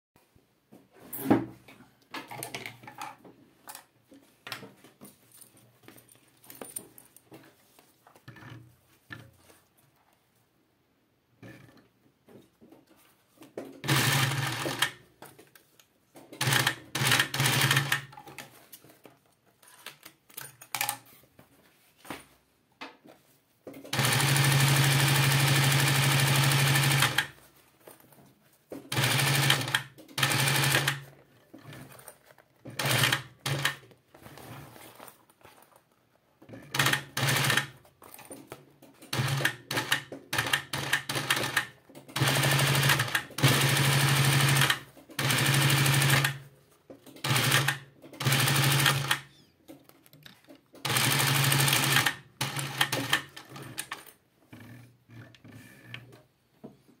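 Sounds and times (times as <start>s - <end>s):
sewing machine stitching: 13.7s - 15.0s, 16.3s - 18.6s, 23.7s - 27.4s, 28.8s - 35.0s, 36.4s - 49.4s, 50.8s - 56.3s.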